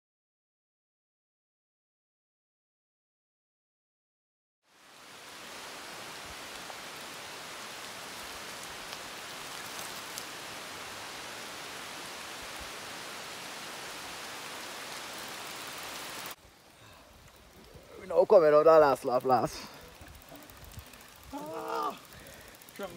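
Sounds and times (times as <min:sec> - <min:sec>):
rain on foliage: 0:04.7 - 0:22.9.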